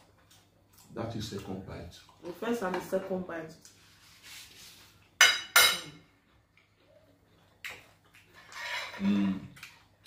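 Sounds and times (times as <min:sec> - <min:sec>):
spoons clinking on ceramic plates: 0:05.2 - 0:06.0
eating sounds: 0:06.0 - 0:10.0.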